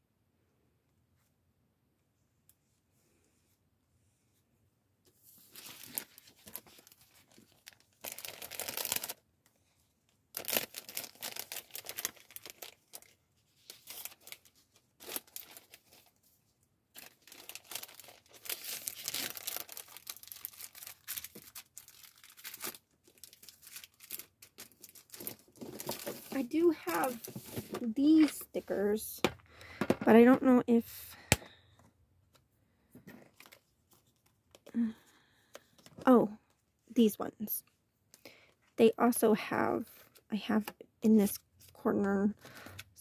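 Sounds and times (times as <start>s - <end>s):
paper and plastic crinkling: 5.4s - 9.2s, 10.3s - 16.2s, 16.9s - 28.8s.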